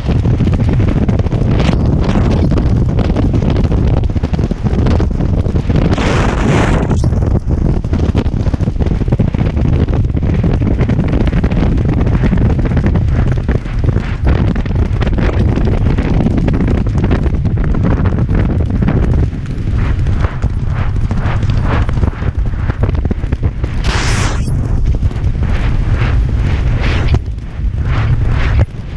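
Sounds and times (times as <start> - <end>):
horse galloping on turf: 0.0 - 28.9
wind buffeting microphone: 0.0 - 28.9.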